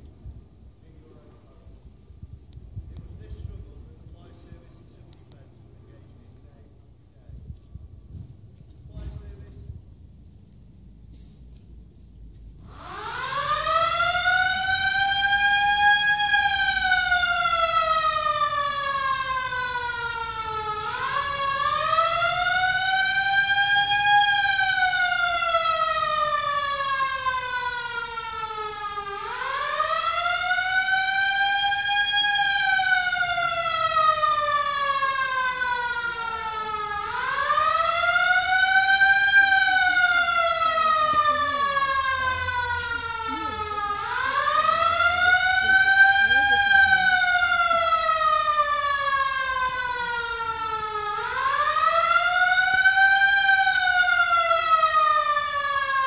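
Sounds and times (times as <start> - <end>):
air-raid siren wailing: 12.5 - 56.0.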